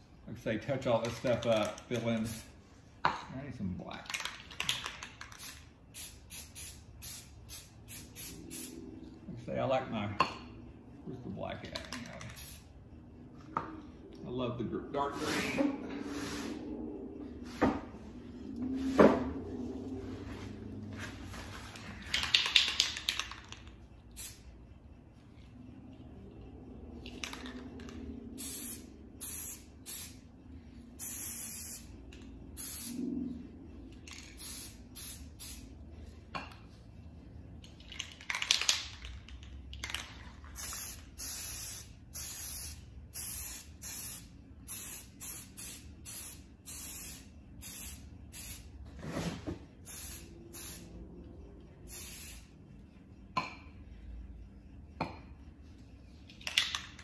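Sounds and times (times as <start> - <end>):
spray paint can hissing: 1.2 - 2.6, 4.5 - 8.8, 12.2 - 12.7, 22.2 - 24.5, 27.2 - 30.2, 31.0 - 33.0, 34.1 - 35.7, 40.5 - 48.7, 49.8 - 50.9, 51.9 - 52.5.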